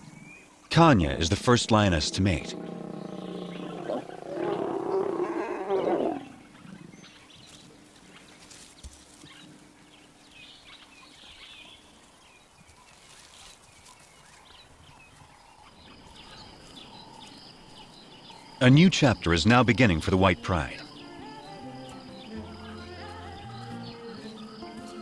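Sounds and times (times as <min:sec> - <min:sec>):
lion snarling: 0:00.9 - 0:06.5.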